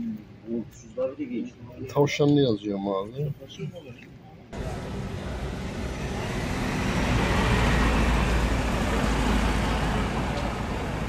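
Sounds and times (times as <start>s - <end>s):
car engine rumble: 4.6s - 11.0s.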